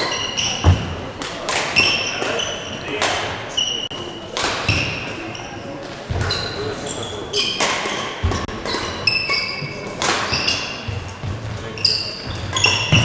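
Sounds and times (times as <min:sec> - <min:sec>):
shoes squeaking on court floor: 0:00.0 - 0:01.0, 0:01.6 - 0:13.0
racket hitting shuttlecock: 0:00.0 - 0:02.4, 0:03.0 - 0:03.4, 0:04.4 - 0:05.1, 0:07.5 - 0:11.3, 0:12.2 - 0:13.0.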